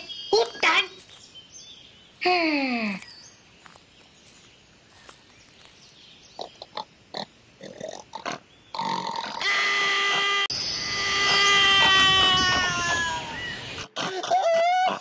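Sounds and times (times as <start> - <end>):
cartoon animal pitched cry: 9.4 - 15.0
cartoon animal snorts and grunts: 13.8 - 14.4.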